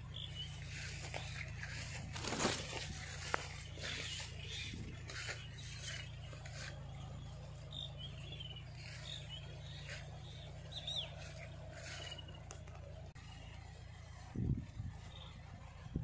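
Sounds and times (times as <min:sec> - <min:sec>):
faint bird chirps: 0:00.0 - 0:16.0
steady low hum: 0:00.0 - 0:16.0.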